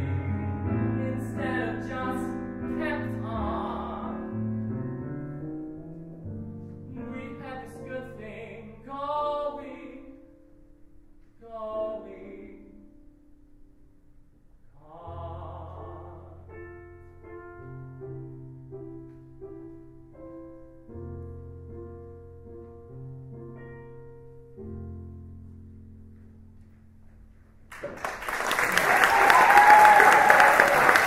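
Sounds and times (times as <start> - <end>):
person singing with vibrato: 0.0 - 4.4, 6.9 - 10.3, 11.4 - 12.9, 14.8 - 16.5
piano chords: 0.0 - 14.4, 15.0 - 31.0
applause: 27.7 - 31.0.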